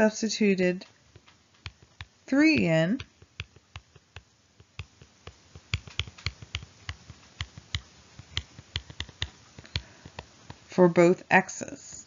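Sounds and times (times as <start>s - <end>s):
stylus tapping on glass screen: 1.2s - 10.6s.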